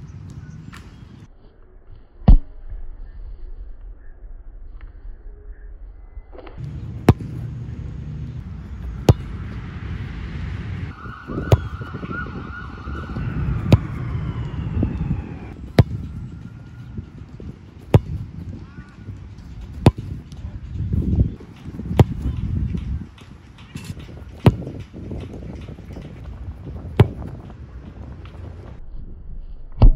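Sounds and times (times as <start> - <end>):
steady low rumble: 0.0 - 29.9
soccer ball kicked with thud: 6.6 - 7.7, 8.7 - 9.6, 11.2 - 12.1, 13.0 - 14.1, 15.7 - 16.1, 17.2 - 18.7, 19.6 - 23.0, 23.6 - 28.8
siren wailing: 10.8 - 17.2.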